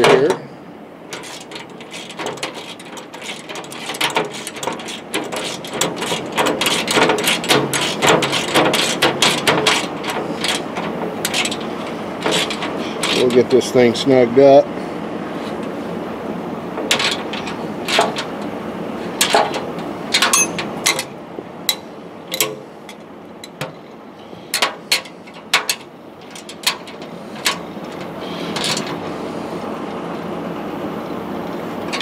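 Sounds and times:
steady background noise: 0.0s - 32.0s
wrench clinking on metal: 19.2s - 21.1s, 21.7s - 23.7s.

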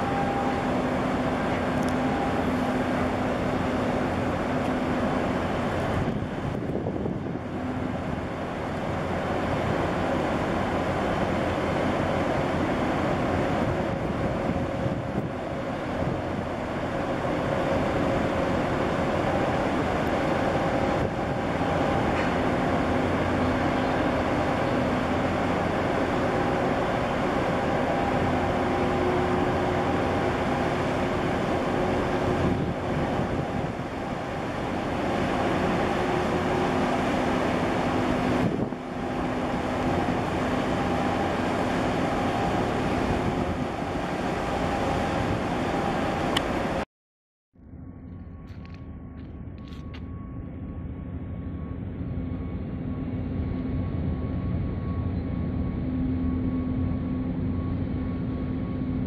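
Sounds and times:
ship engine droning hum: 0.0s - 46.9s, 47.6s - 59.0s
wind on microphone: 5.6s - 8.4s, 13.4s - 16.6s, 27.5s - 35.5s, 36.4s - 46.8s.

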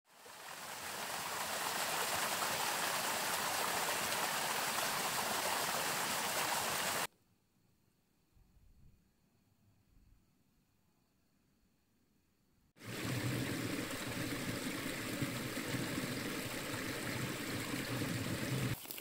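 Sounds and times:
waterfall splashing over rocks: 0.1s - 7.1s, 12.8s - 19.0s.

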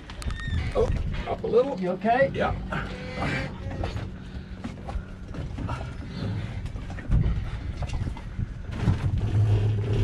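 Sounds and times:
boat hardtop creaking and knocking: 2.4s - 9.5s.

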